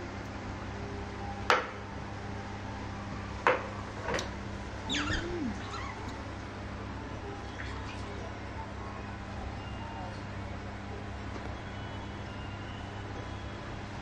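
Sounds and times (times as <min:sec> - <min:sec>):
steady low hum: 0:00.0 - 0:07.5
baby monkey squeaking: 0:04.9 - 0:06.1.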